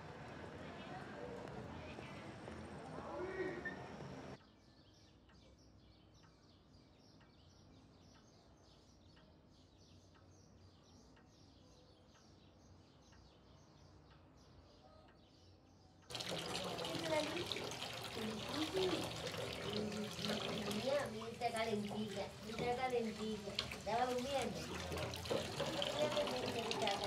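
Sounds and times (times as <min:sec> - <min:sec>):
small birds chirping faintly: 0:00.2 - 0:27.0
tap running into sink: 0:16.1 - 0:27.0.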